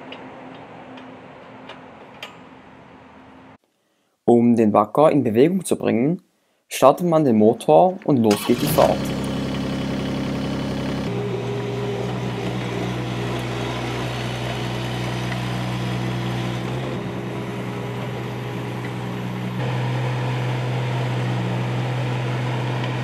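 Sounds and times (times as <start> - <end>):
mini excavator diesel engine running: 8.3 - 23.0.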